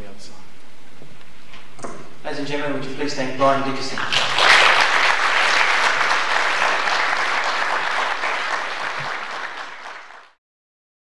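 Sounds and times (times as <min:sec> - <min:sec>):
audience applauding: 0:03.9 - 0:10.4.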